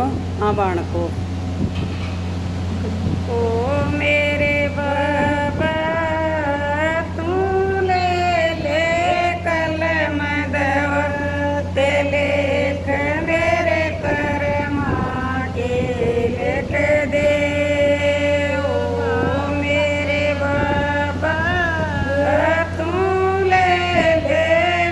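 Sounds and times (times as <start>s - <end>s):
steady low hum: 0.0s - 24.9s
woman singing solo: 3.3s - 24.9s.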